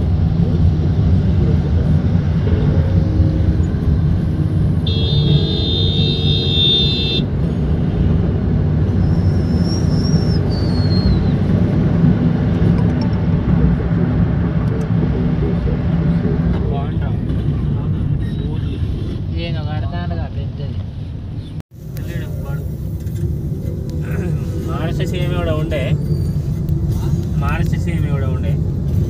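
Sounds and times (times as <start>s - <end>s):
road and engine rumble: 0.0s - 29.0s
vehicle horn blaring: 4.8s - 7.3s.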